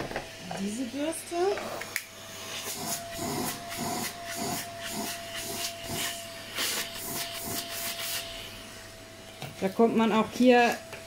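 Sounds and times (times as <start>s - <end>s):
vacuum motor whine and suction: 0.0s - 11.0s.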